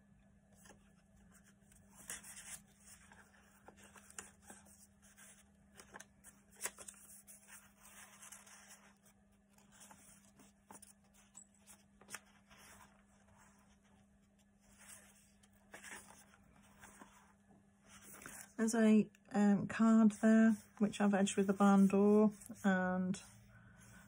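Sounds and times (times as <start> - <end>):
pages turning: 0.5 - 18.6
paper rustling: 0.5 - 18.6.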